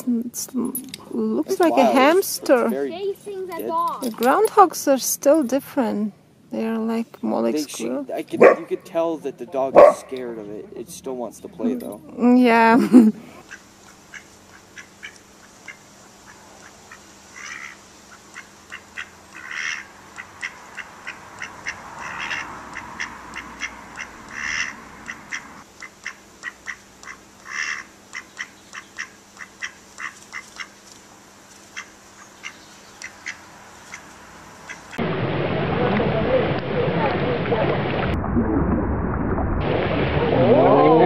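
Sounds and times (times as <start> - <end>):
duck quacking: 13.4 - 30.7.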